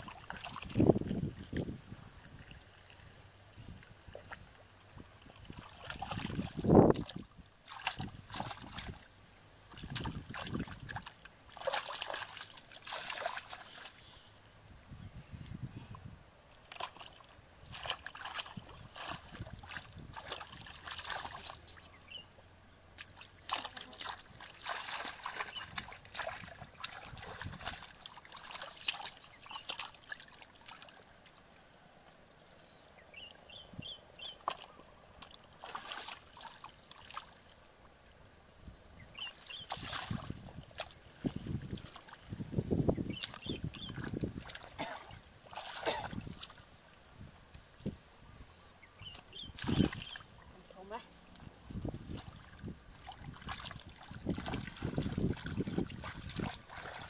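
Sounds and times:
hands splashing in muddy water: 0:00.0 - 0:01.8, 0:05.2 - 0:09.1, 0:09.7 - 0:14.1, 0:16.6 - 0:21.8, 0:23.0 - 0:31.0, 0:34.2 - 0:37.5, 0:39.2 - 0:42.3, 0:43.0 - 0:46.7, 0:49.1 - 0:50.4, 0:51.2 - 0:57.0.

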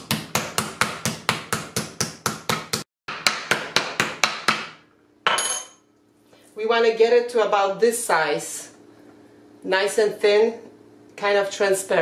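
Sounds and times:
meat mallet pounding on wood: 0:00.0 - 0:04.8.

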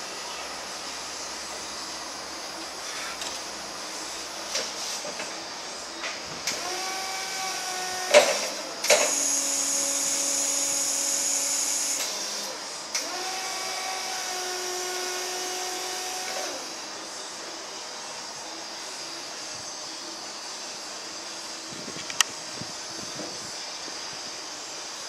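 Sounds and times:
hydraulic pump motor whining: 0:01.0 - 0:17.0.

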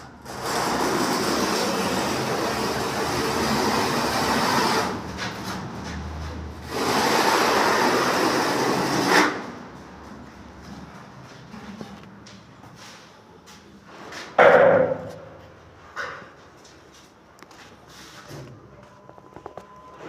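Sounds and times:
gritty material scraping on wire mesh: 0:00.3 - 0:02.4.

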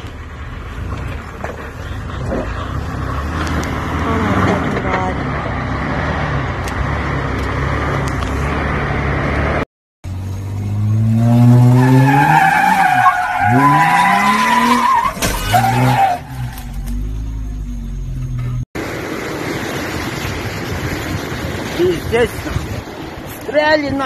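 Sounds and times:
car engine revving: 0:00.0 - 0:21.8
tyres squealing on pavement: 0:11.7 - 0:17.0.

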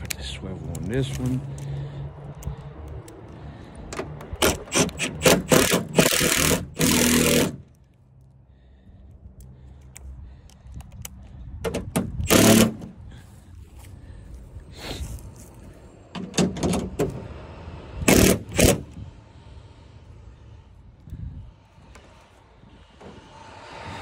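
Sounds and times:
cordless drill bursts: 0:04.4 - 0:07.6, 0:12.2 - 0:12.9, 0:18.0 - 0:19.0.

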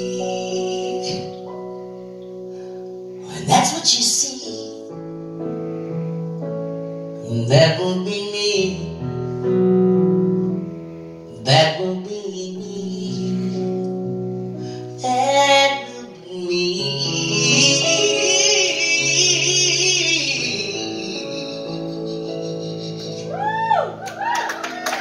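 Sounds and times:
woman singing: 0:00.0 - 0:01.5, 0:03.3 - 0:04.9, 0:07.3 - 0:08.9, 0:11.4 - 0:13.7, 0:15.0 - 0:22.0
keyboard sustained chords: 0:00.0 - 0:25.0.

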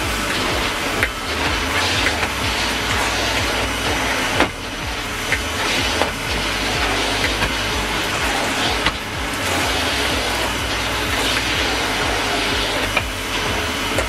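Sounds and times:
floor tool pushed over carpet: 0:00.0 - 0:14.0
vacuum cleaner running: 0:00.0 - 0:14.0.

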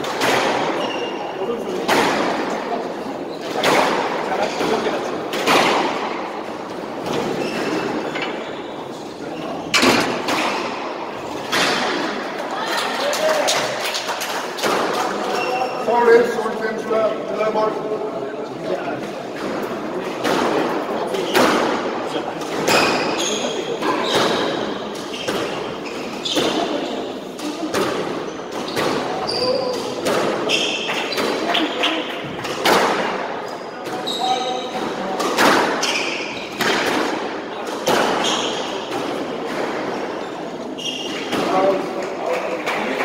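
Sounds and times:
sharp knocks in squash court: 0:00.0 - 0:01.1, 0:01.7 - 0:08.4, 0:09.6 - 0:12.4, 0:14.5 - 0:15.3, 0:19.3 - 0:40.3
shoes squeaking on wooden floor: 0:07.0 - 0:09.8, 0:22.7 - 0:27.1, 0:28.3 - 0:32.0, 0:33.5 - 0:34.8, 0:40.2 - 0:41.7.

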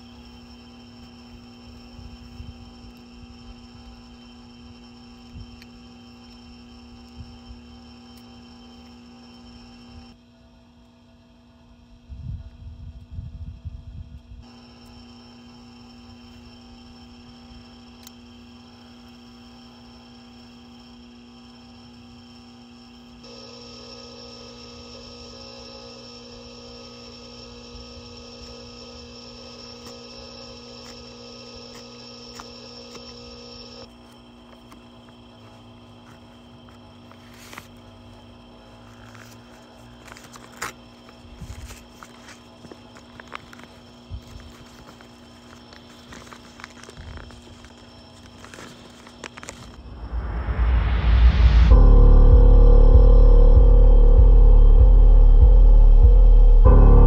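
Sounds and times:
high ringing tones: 0:00.0 - 0:10.2, 0:14.4 - 0:33.9, 0:49.7 - 0:57.0
faint steady hum: 0:00.0 - 0:57.0
paper crackling and crinkling: 0:33.9 - 0:37.9, 0:38.6 - 0:49.8
low drone hum: 0:49.3 - 0:57.0.

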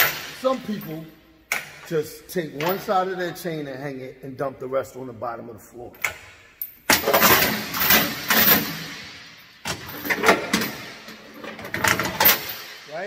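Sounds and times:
chain clanking against metal box: 0:06.9 - 0:13.0.

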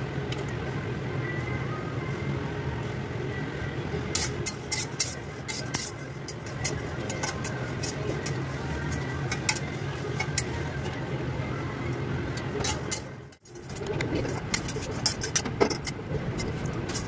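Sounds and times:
steady low hum: 0:00.0 - 0:17.0
metal spatula scraping a pan: 0:04.1 - 0:10.7, 0:12.6 - 0:17.0.

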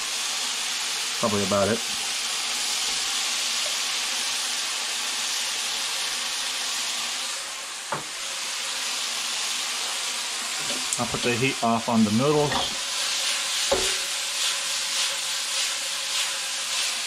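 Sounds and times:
meat sizzling in a frying pan: 0:00.0 - 0:17.0
sharp tap on pan: 0:13.7 - 0:14.1.

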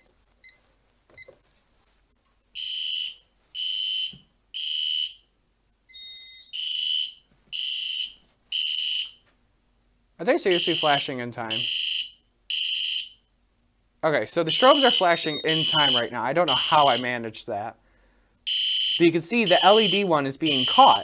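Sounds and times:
fire alarm horn blasts: 0:02.6 - 0:05.2, 0:05.9 - 0:09.2, 0:10.5 - 0:13.2, 0:14.4 - 0:17.2, 0:18.5 - 0:21.0.

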